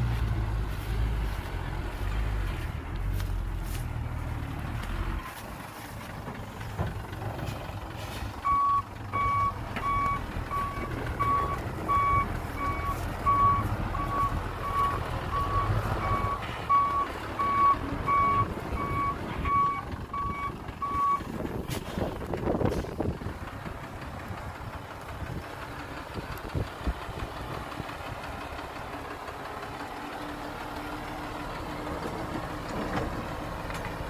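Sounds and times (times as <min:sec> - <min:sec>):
vehicle engine rumble: 0:00.0 - 0:34.0
reversing alarm beeping: 0:08.4 - 0:21.3.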